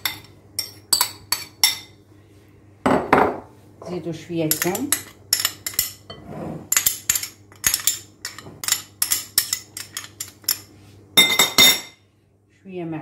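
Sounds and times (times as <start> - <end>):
metal spoon clinking on ceramic dish: 0.0 - 2.0, 4.5 - 12.0.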